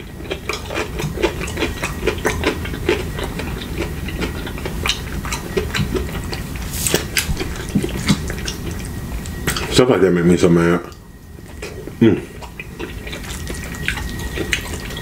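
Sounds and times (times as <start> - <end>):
chewing with wet mouth clicks: 0.0 - 9.8, 10.8 - 15.0.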